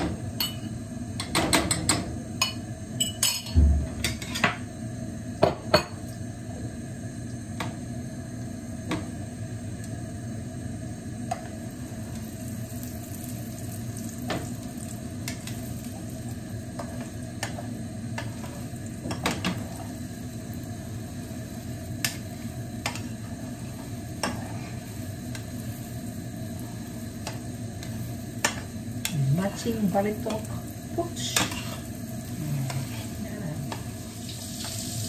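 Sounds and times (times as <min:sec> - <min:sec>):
eggs sizzling in a pan: 0:00.0 - 0:35.0
spatula scraping a pan: 0:31.3 - 0:31.9, 0:32.5 - 0:33.3.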